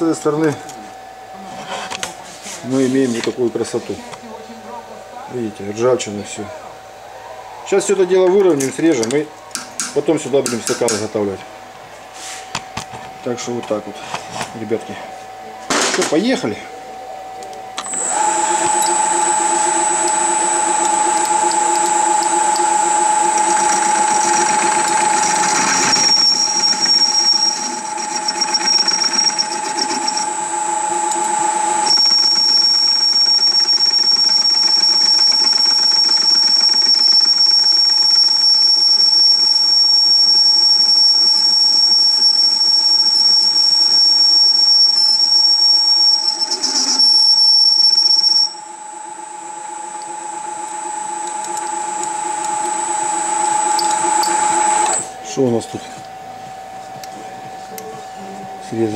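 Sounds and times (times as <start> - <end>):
high whine of cutting tool: 16.2 - 58.9
metal lathe humming: 17.8 - 55.3.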